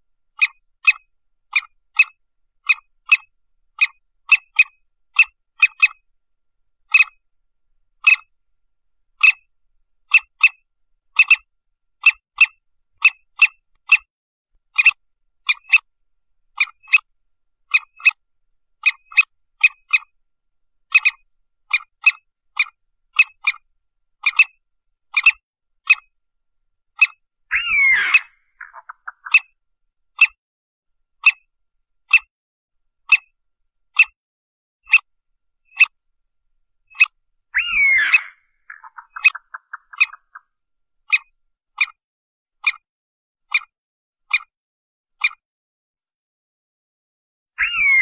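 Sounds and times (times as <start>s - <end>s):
partridge chirping calls: 0.4s - 6.0s, 6.9s - 7.2s, 8.0s - 8.3s, 9.2s - 9.5s, 10.1s - 14.1s, 14.7s - 15.9s, 16.5s - 17.1s, 17.7s - 18.2s, 18.8s - 20.2s, 20.9s - 26.1s, 27.0s - 29.6s, 30.2s - 30.4s, 31.2s - 31.5s, 32.1s - 32.3s, 33.1s - 33.3s, 34.0s - 34.2s, 34.9s - 35.1s, 35.7s - 36.0s, 36.9s - 40.4s, 41.1s - 42.0s, 42.6s - 42.8s, 45.2s - 45.4s, 47.6s - 48.0s.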